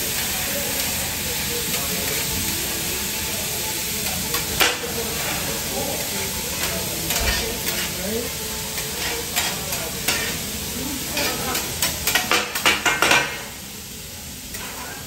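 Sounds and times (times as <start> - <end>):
meat sizzling on a griddle: 0.0 - 15.0
metal utensils scraping hot plate: 6.6 - 8.0, 8.8 - 10.4, 11.1 - 13.4.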